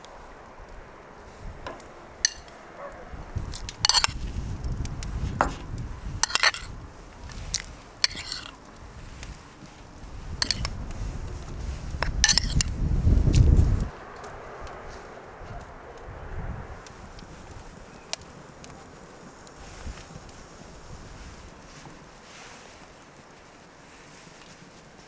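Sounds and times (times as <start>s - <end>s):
metal spoon clinking bowl: 2.2s - 2.5s, 3.8s - 4.2s, 6.2s - 6.7s, 8.0s - 8.5s, 10.4s - 10.7s, 12.2s - 12.7s.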